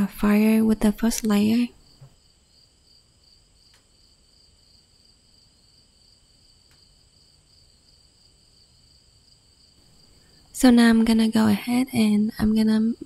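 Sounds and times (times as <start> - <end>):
faint ticks: 3.6 - 4.0, 6.6 - 6.9.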